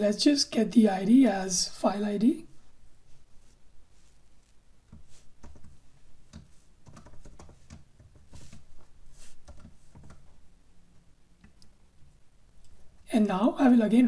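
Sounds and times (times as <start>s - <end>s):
typing on keyboard: 5.4s - 8.6s, 9.4s - 10.4s.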